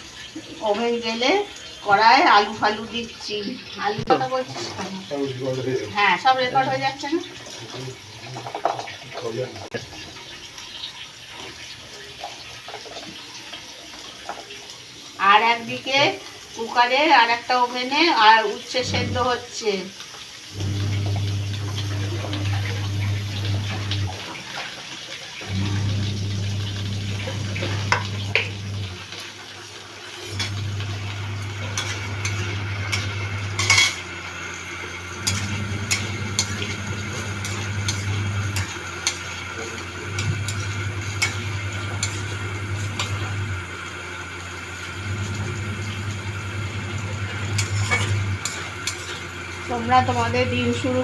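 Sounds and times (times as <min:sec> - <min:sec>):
metal spatula scraping a pan: 0:30.0 - 0:43.3, 0:47.6 - 0:50.2.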